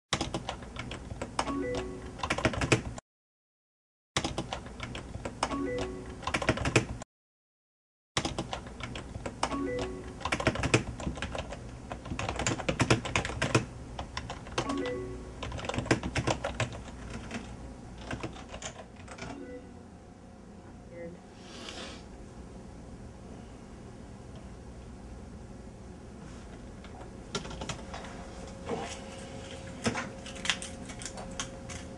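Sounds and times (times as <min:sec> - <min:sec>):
rapid keyboard typing: 0:00.2 - 0:03.0, 0:04.2 - 0:07.0, 0:08.2 - 0:19.4, 0:27.3 - 0:27.8.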